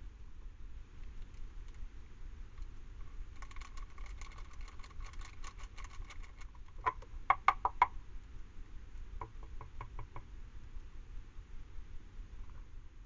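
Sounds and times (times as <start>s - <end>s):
dry cat food pattering: 2.6s - 7.0s.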